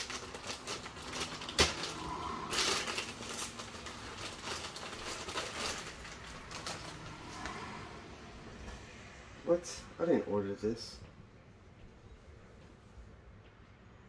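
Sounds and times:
package rustling and crinkling: 0.0 - 7.6.

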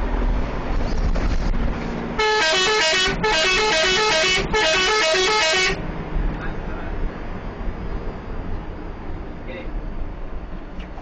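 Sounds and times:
bus rumbling on road: 0.0 - 11.0
bus musical horn tune: 2.2 - 5.8.

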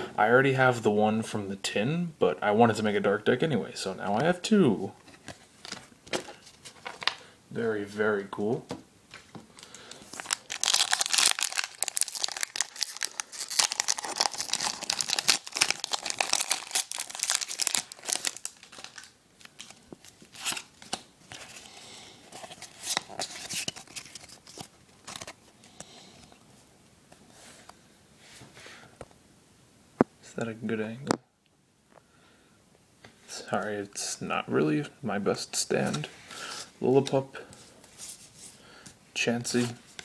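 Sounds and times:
foil wrapper tearing and crinkling: 10.1 - 21.0.

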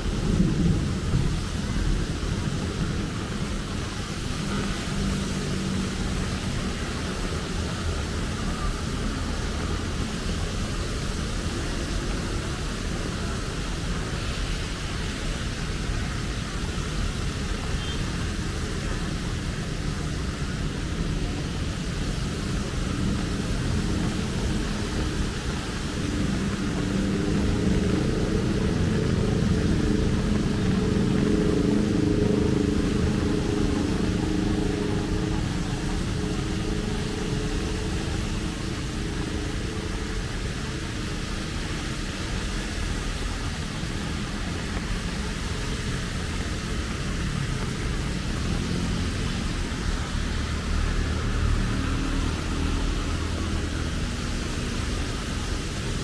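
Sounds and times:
rain and wet tyres hissing: 0.0 - 56.0
vehicle engine passing: 21.2 - 41.7, 44.0 - 55.4.

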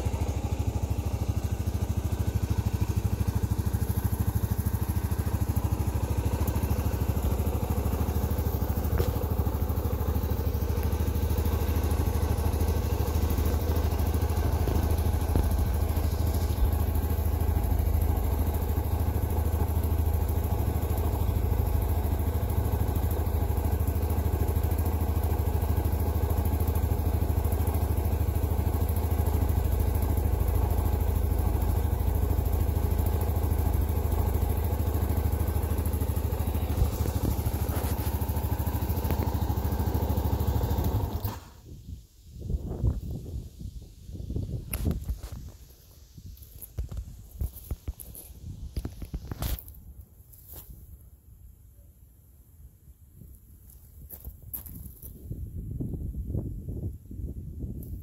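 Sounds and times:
atv engine idling: 0.0 - 41.7.

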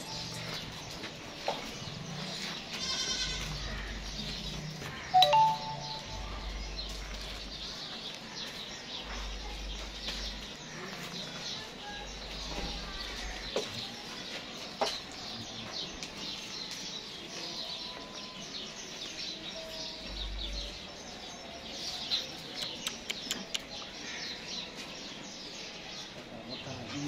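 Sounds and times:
small birds chirping: 0.0 - 27.0
sharp clicks: 22.6 - 23.8.

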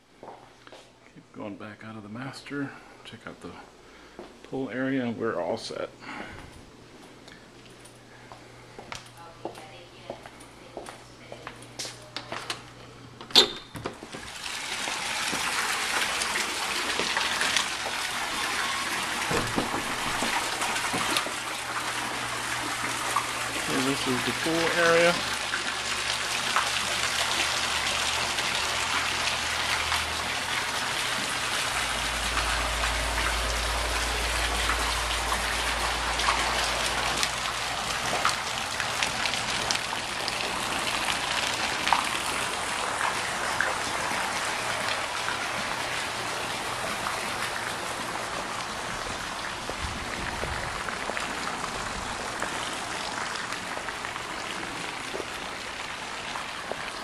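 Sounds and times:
fountain splashing into pool: 14.0 - 57.0.

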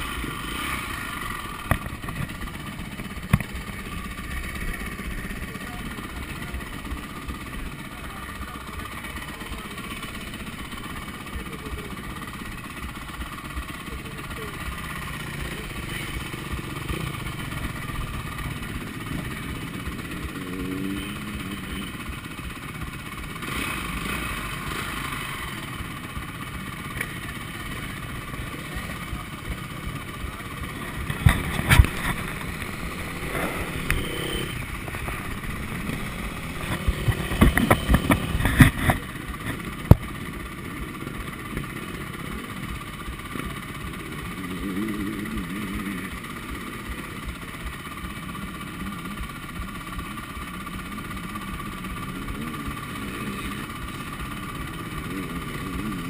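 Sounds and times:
motocross bikes idling and revving: 0.0 - 56.0
sharp knocks and rattles: 34.7 - 40.3.

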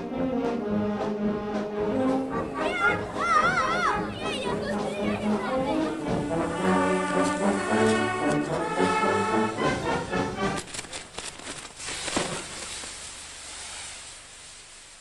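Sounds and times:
brass band music: 0.0 - 10.6
fireworks crackling and banging: 5.8 - 9.0, 10.0 - 15.0.

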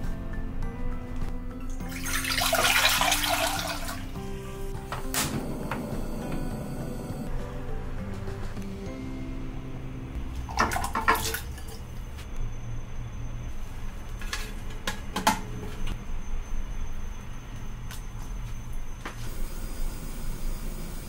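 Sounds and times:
water splashing in a saucepan: 1.8 - 4.2, 10.5 - 11.8.

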